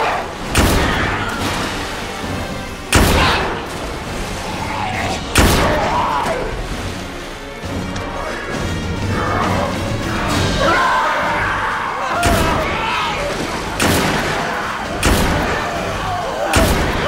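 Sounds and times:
tense film score: 0:00.0 - 0:17.0
loud handgun shots with echo: 0:13.8 - 0:14.4.

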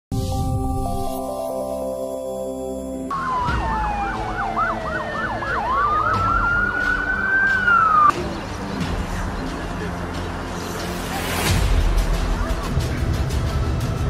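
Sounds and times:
siren wailing: 0:03.1 - 0:08.1
siren yelping: 0:03.1 - 0:08.1.

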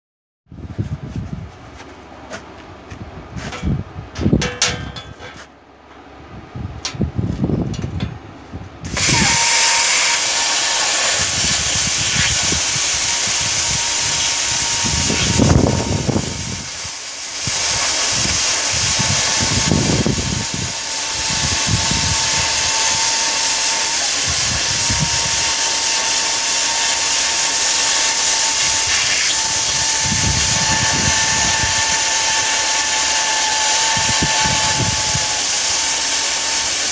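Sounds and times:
plasma cutter arc hissing: 0:08.9 - 0:36.9.

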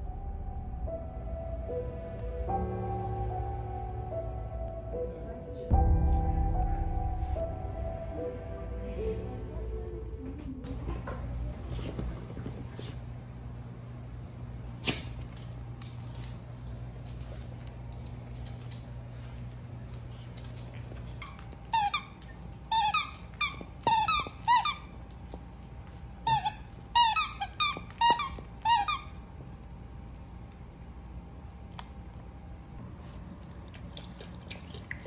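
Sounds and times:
dog toy squeaking: 0:22.7 - 0:24.9, 0:26.2 - 0:29.1.

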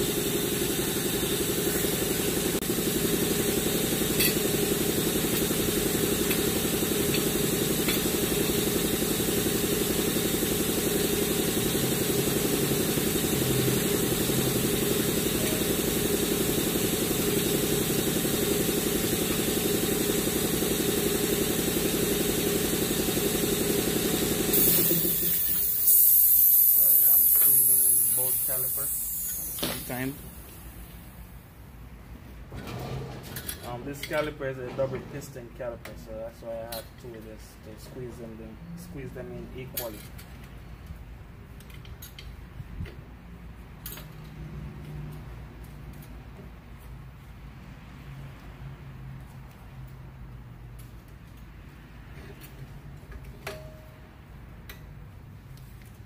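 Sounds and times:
machine droning: 0:00.0 - 0:31.3.

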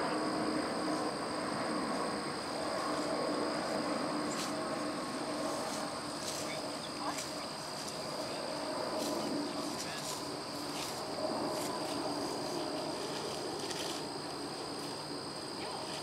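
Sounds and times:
insects trilling: 0:00.0 - 0:16.0
people talking: 0:06.2 - 0:13.0, 0:15.6 - 0:16.0.

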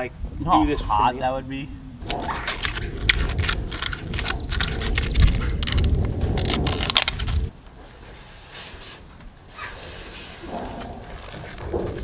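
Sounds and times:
low rumble: 0:01.7 - 0:07.6
plastic film crackling and rustling: 0:02.4 - 0:07.5.

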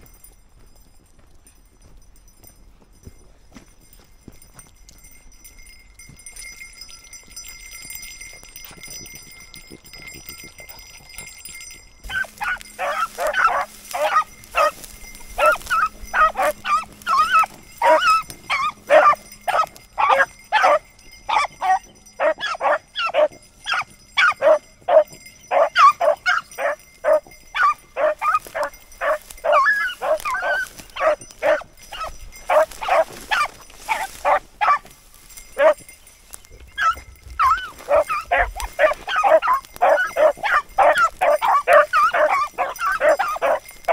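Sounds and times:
beagles baying: 0:10.2 - 0:43.9.

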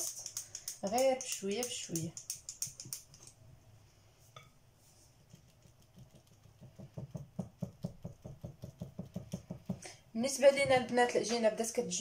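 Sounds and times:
whisk stirring in bowl: 0:05.1 - 0:09.8.

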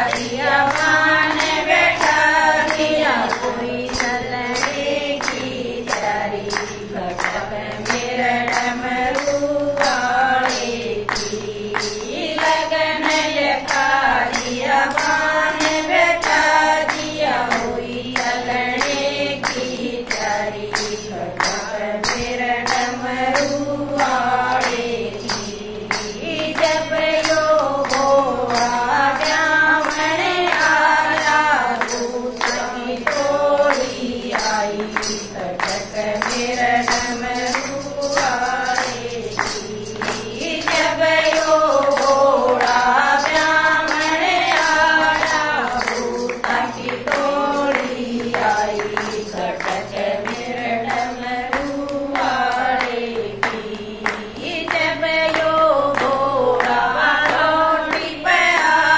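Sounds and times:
hand clapping: 0:00.0 - 0:58.9
women singing together: 0:00.0 - 0:58.9.

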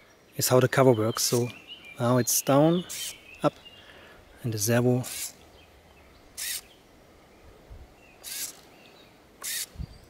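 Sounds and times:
small servo whirring: 0:05.0 - 0:05.4, 0:06.4 - 0:06.7, 0:08.2 - 0:08.7, 0:09.4 - 0:09.8.

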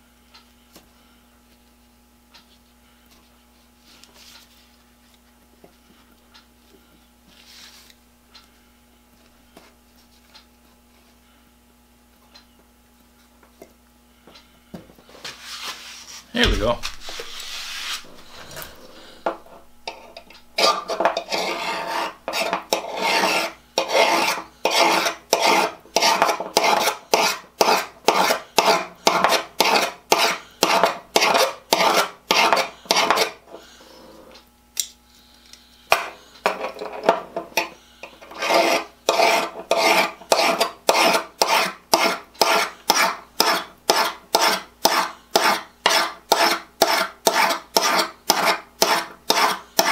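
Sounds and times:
hand file scraping steel shears: 0:16.9 - 0:33.4, 0:35.9 - 0:49.9.

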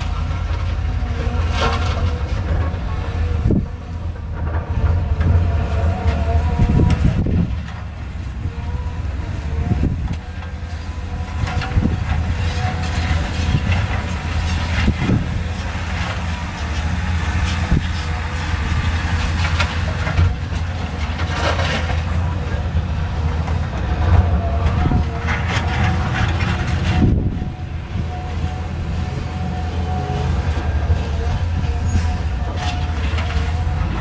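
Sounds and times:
excavator diesel engine under load: 0:00.0 - 0:34.0.

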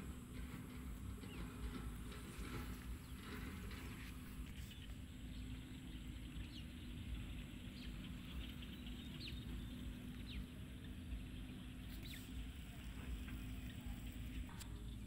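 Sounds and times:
low steady rumble: 0:00.0 - 0:15.0
faint bird chirps: 0:04.4 - 0:15.0.

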